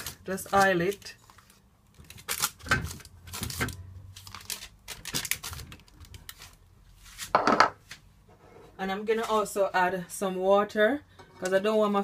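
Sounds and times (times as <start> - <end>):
knock: 7.4 - 7.8.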